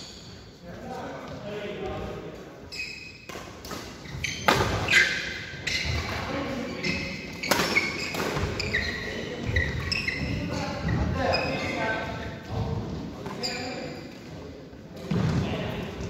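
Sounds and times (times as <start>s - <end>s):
shoes squeaking on court: 0.0s - 0.6s, 1.2s - 14.3s
badminton rackets hitting shuttlecock: 3.2s - 6.2s, 7.3s - 10.0s.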